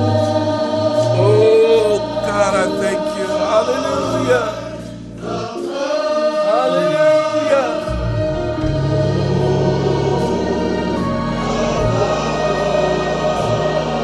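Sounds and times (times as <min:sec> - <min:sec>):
choir singing worship music: 0:00.0 - 0:14.0
sustained chords and bass line: 0:07.2 - 0:14.0.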